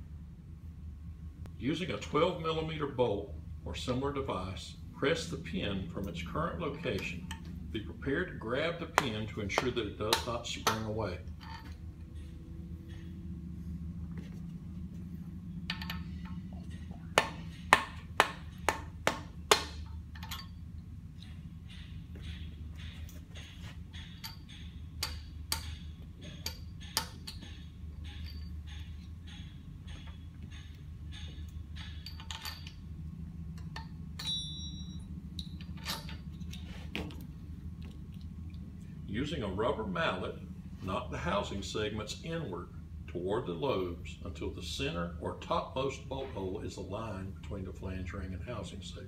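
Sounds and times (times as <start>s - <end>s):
low hum: 0.0s - 49.0s
metal pins clinking: 5.2s - 13.6s, 14.4s - 37.3s.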